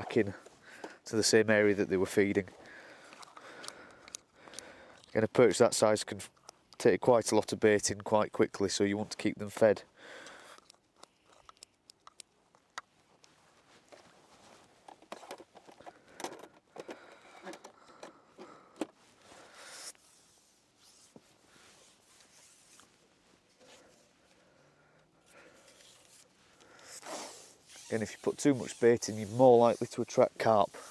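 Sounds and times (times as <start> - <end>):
faint tackle clicks: 2.4 - 5.5, 6.1 - 7.0, 9.5 - 19.0
soft rustles: 12.9 - 16.1, 19.0 - 24.6.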